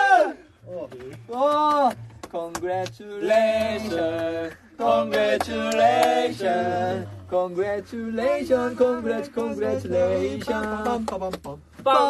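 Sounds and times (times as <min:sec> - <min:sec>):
men singing a cappella: 0:02.4 - 0:12.0.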